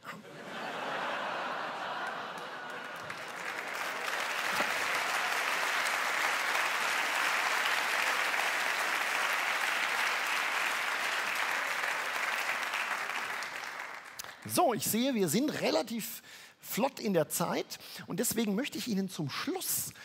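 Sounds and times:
audience applauding: 0:00.7 - 0:14.6.

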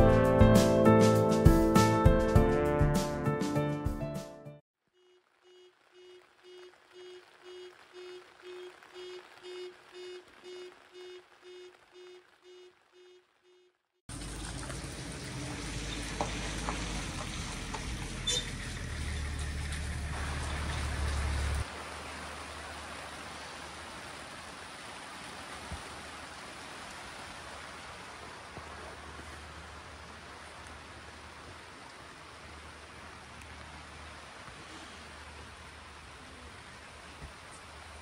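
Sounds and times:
rain on tent fabric roof: 0:05.2 - 0:13.4, 0:14.1 - 0:38.0
rain over wet car park: 0:05.3 - 0:13.0, 0:14.1 - 0:38.0.

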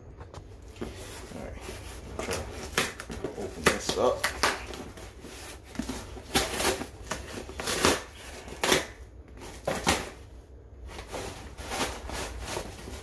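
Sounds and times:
cardboard and tape ripping: 0:02.2 - 0:10.2.

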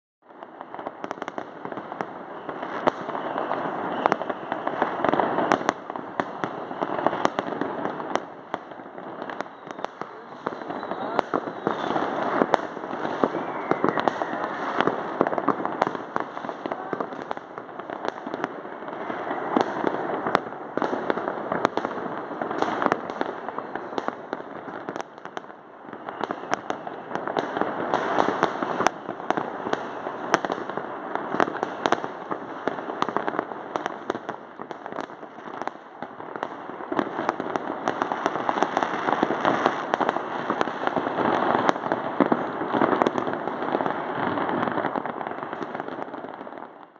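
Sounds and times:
fireworks crackling and banging: 0:00.2 - 0:46.9.

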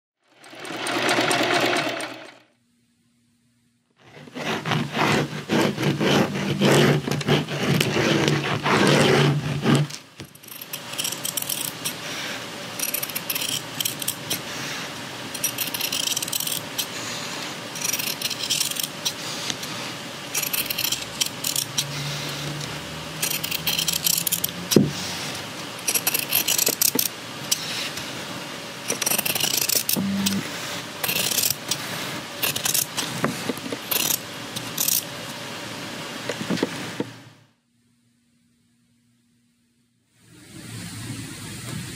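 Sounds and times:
pen scraping along ruler: 0:04.0 - 0:10.0, 0:20.4 - 0:22.5, 0:23.2 - 0:25.1, 0:28.9 - 0:30.4.

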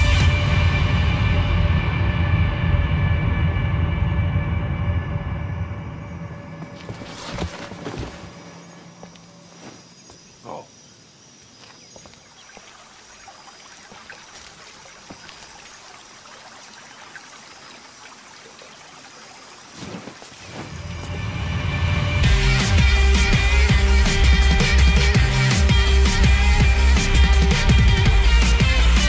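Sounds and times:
music: 0:00.0 - 0:08.5, 0:20.6 - 0:29.0.

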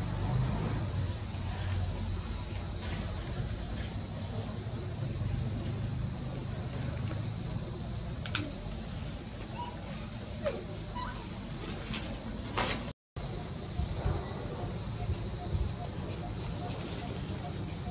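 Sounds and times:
high-pitched insect chorus: 0:00.0 - 0:17.9.

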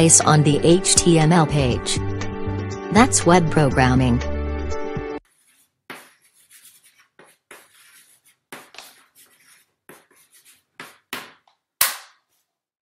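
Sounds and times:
marker pen writing on a board: 0:05.2 - 0:11.5.

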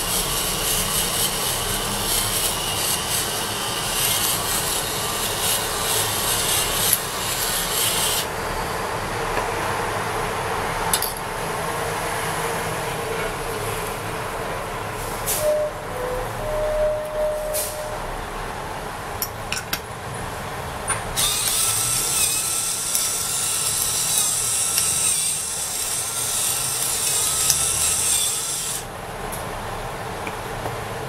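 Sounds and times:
pepper mill grinding: 0:21.2 - 0:28.8.

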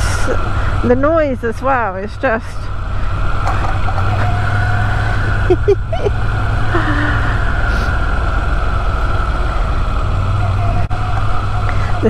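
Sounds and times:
motorcycle engine running: 0:00.0 - 0:12.0
road and wind noise: 0:00.0 - 0:12.0.

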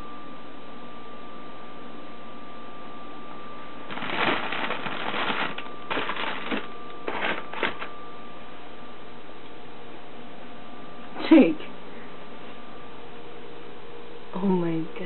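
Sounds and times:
packages rustling and crinkling: 0:03.9 - 0:07.9.

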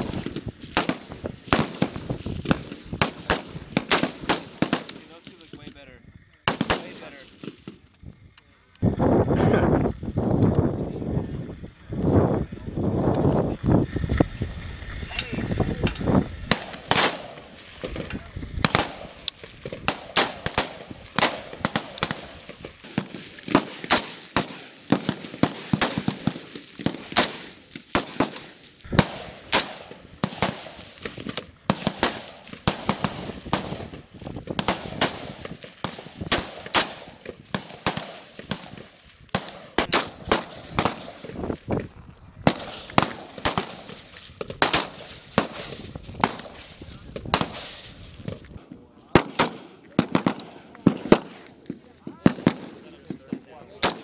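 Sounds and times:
rifles firing: 0:00.0 - 0:05.7, 0:06.5 - 0:07.9, 0:16.5 - 0:41.4, 0:42.4 - 0:48.0, 0:49.1 - 0:54.0.

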